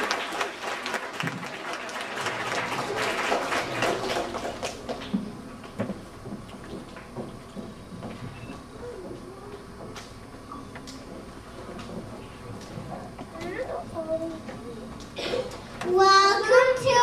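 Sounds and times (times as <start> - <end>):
audience applause: 0.0 - 5.2
low murmur of people: 0.0 - 17.0.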